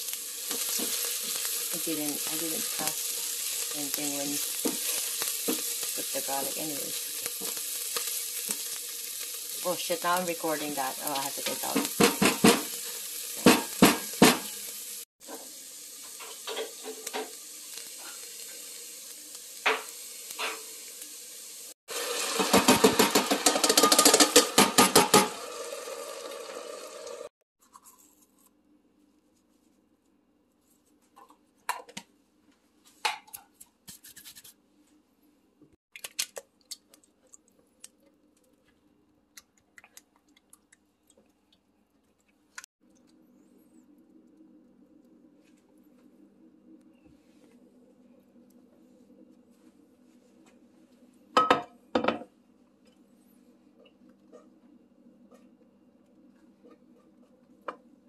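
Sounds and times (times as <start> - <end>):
onions sizzling in oil: 0.0 - 27.3.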